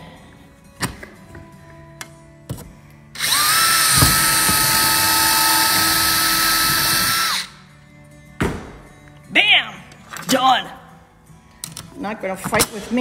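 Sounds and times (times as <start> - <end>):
cordless drill drilling: 3.2 - 7.6.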